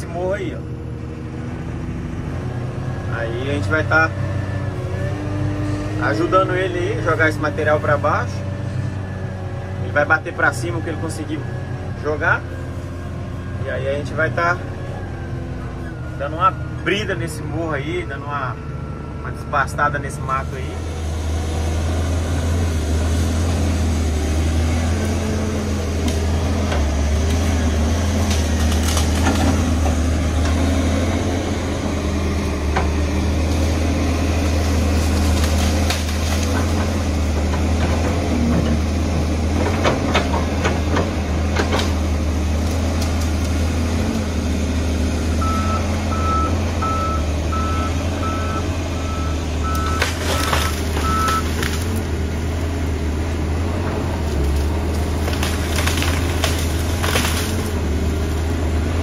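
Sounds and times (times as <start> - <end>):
diesel engine running: 0.0 - 59.0
reversing alarm beeping: 45.4 - 51.5.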